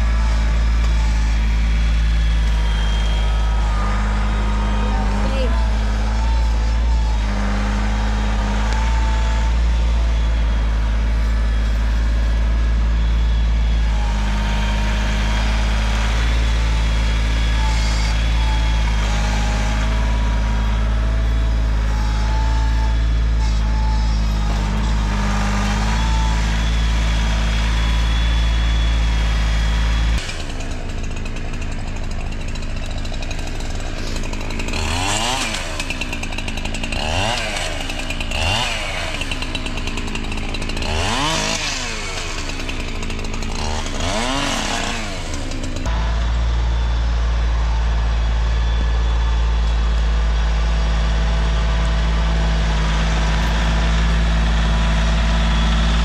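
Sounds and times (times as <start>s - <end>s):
chainsaw revving: 0.0s - 56.0s
tractor engine running: 0.0s - 56.0s.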